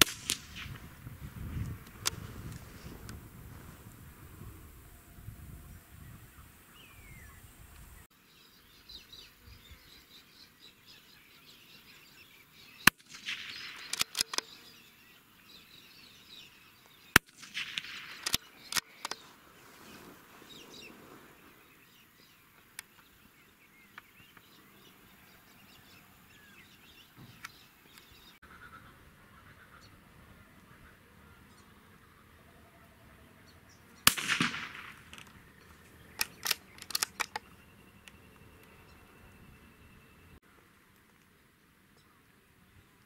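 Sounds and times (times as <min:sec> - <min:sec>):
faint birds chirping: 0:01.3 - 0:43.0
rifle shots: 0:12.9 - 0:14.4, 0:17.2 - 0:18.8, 0:34.0 - 0:35.3
quiet clicks: 0:34.7 - 0:38.8.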